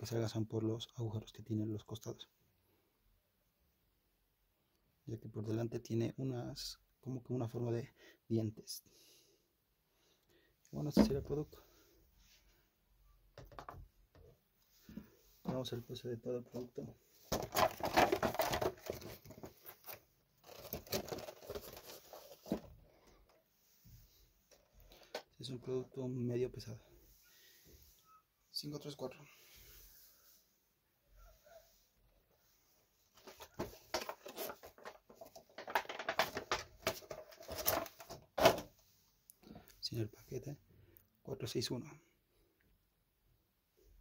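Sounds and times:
plastic packaging crackling: 17.3 - 22.5, 33.2 - 38.2.

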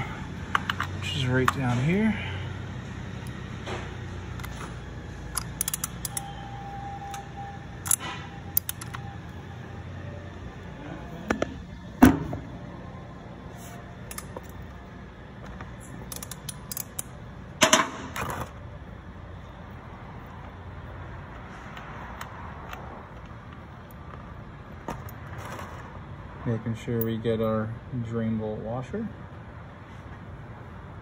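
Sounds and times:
low steady hum: 0.0 - 31.0
metal hand tools clicking: 5.3 - 6.4, 16.0 - 17.1.

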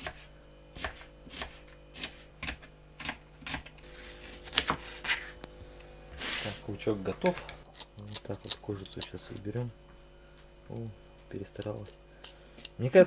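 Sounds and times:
knife chopping on cutting board: 0.0 - 3.7, 4.4 - 5.3.

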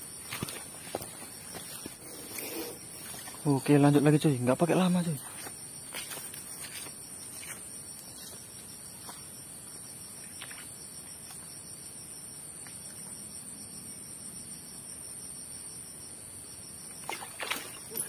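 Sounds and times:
faint ticks and rustles: 0.2 - 9.3.

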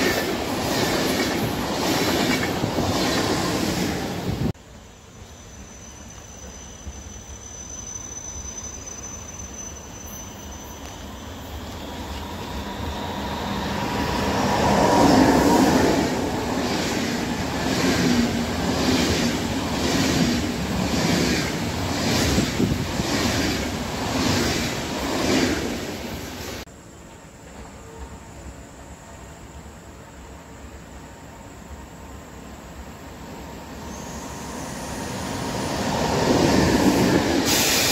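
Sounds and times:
passenger train passing at speed: 0.0 - 37.9.

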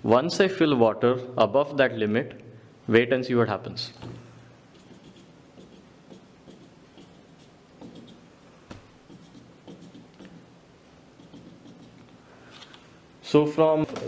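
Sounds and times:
marker scratching on whiteboard: 4.7 - 12.2
marker tapping on whiteboard: 7.8 - 10.4.

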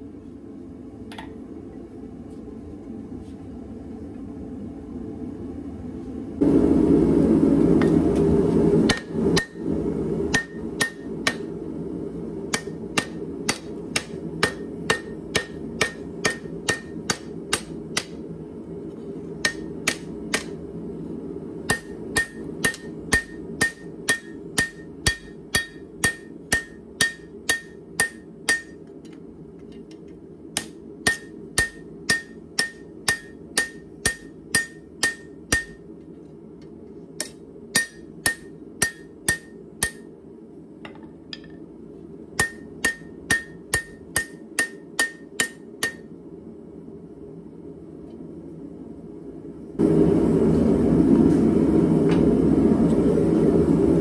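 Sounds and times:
gas forge burner rushing: 6.4 - 28.6
hammer striking steel on anvil: 8.8 - 9.7, 10.3 - 11.5, 12.5 - 18.2, 19.4 - 20.6, 21.7 - 28.9, 30.5 - 35.9, 37.2 - 40.1, 42.4 - 46.1.

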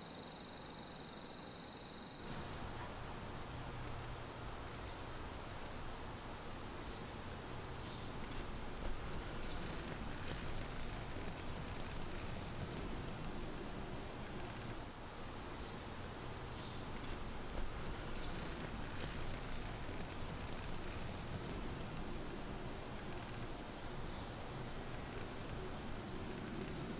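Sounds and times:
insect chorus drone: 0.0 - 26.9.

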